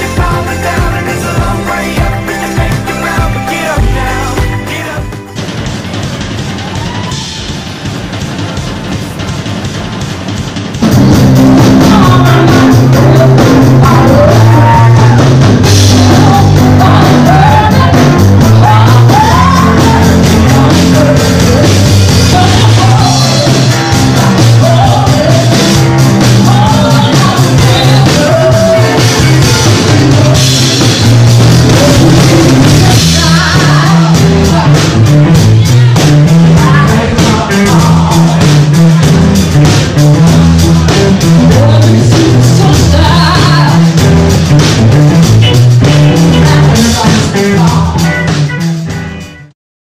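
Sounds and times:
electric guitar: 0.0s - 7.5s, 10.8s - 49.5s
bass guitar: 0.0s - 49.6s
drum kit: 0.0s - 49.6s
woman singing: 11.7s - 30.6s, 31.7s - 38.4s, 41.4s - 43.9s, 45.8s - 48.1s.

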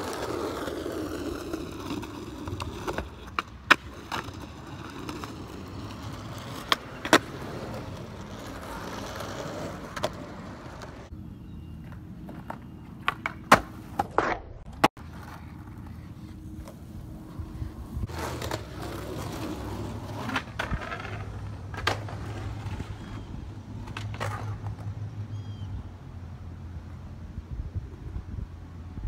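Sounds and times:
skateboard clacks on concrete: 0.0s - 11.0s, 11.8s - 16.0s, 18.1s - 23.2s, 23.8s - 24.9s
skateboard wheels rolling: 0.0s - 25.9s.

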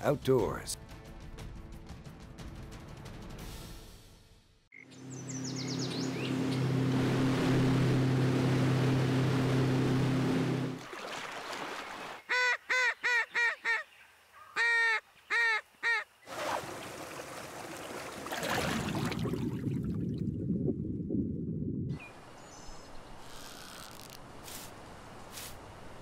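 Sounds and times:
rushing river water: 6.1s - 12.3s, 16.3s - 19.5s.

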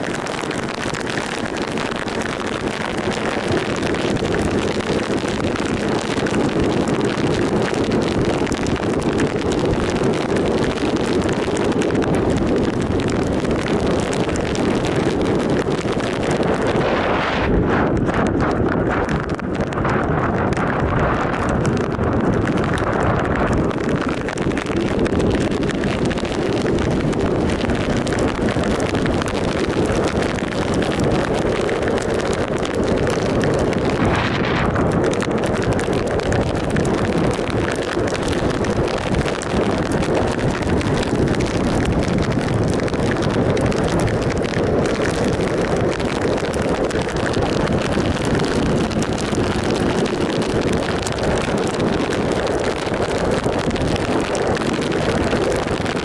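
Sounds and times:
wind rushing over microphone: 0.0s - 56.0s.

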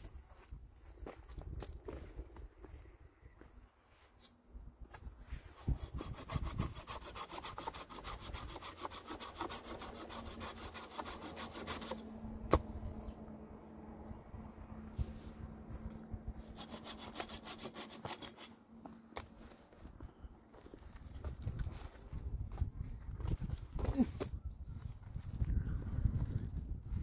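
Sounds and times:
saw rasping through wood: 5.4s - 12.1s, 16.3s - 18.6s.

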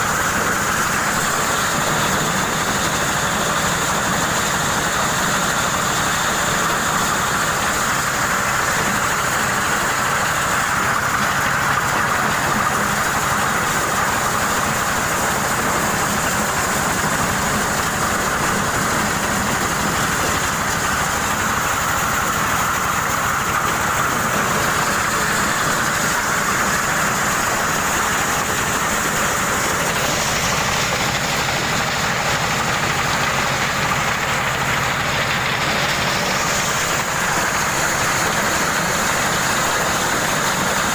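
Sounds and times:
corn sheller running: 0.0s - 40.9s.

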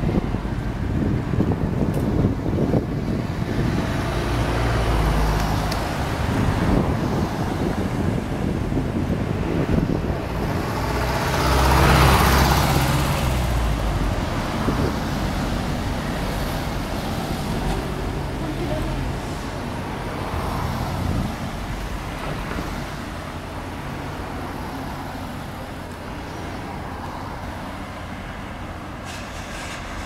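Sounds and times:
cars and trucks driving past: 0.0s - 30.0s
loud vehicle passing: 3.4s - 23.1s.

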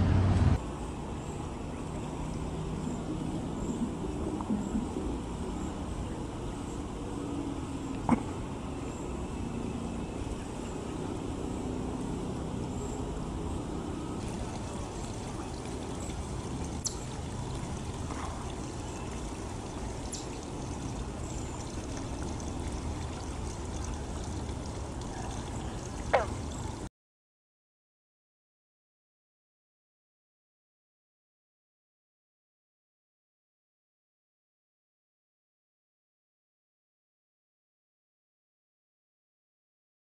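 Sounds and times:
water trickling over rock: 14.2s - 26.9s.

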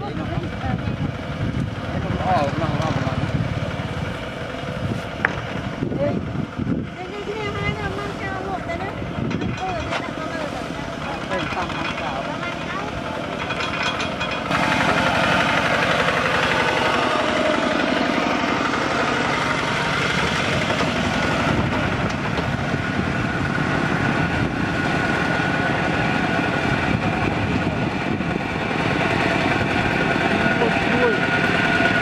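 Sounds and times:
diesel engine chugging: 0.0s - 32.0s.

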